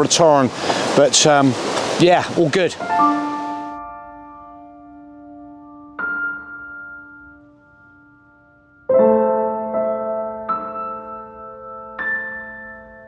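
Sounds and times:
slow piano chords: 2.7 - 13.0.

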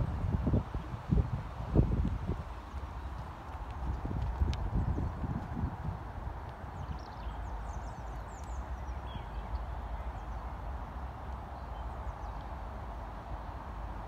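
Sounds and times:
hoofbeats on sand: 0.0 - 9.5.

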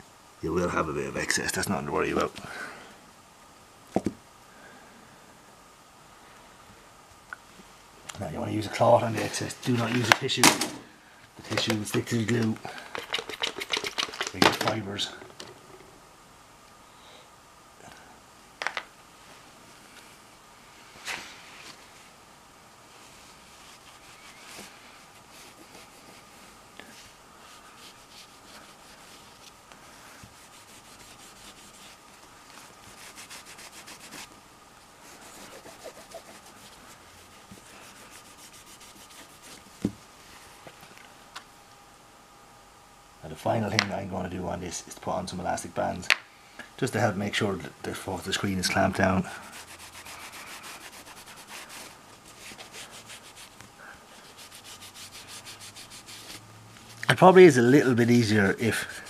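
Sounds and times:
cloth rubbing on glass screen: 22.9 - 34.4, 35.0 - 40.6, 48.6 - 59.0.

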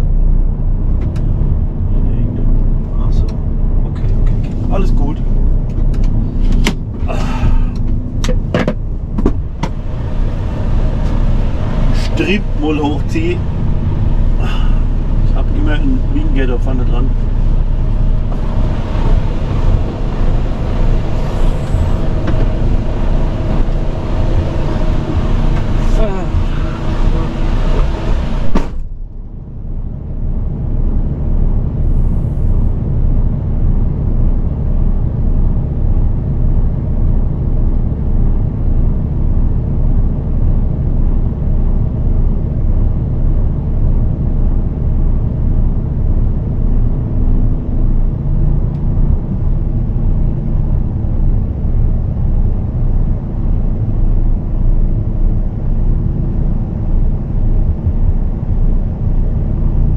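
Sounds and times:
truck diesel engine idling: 4.8 - 31.2.

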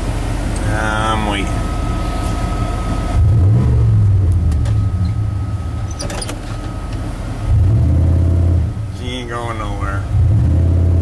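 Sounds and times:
truck engine revving: 2.2 - 8.9, 9.9 - 11.0.

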